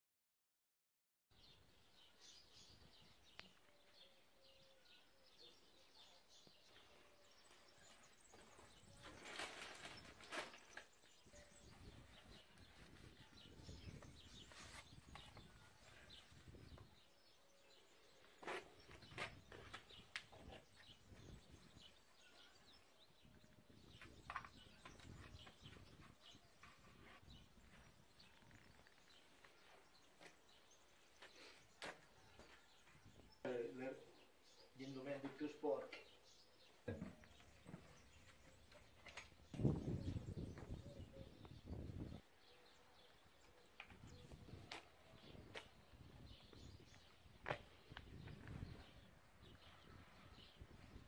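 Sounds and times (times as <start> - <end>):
helmet and box clicks and rustles: 8.4 - 11.2.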